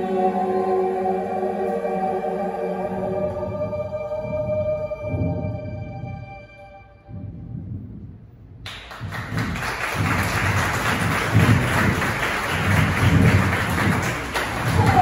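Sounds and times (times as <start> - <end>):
low thuds: 7.0 - 14.8
audience applause: 8.7 - 15.0.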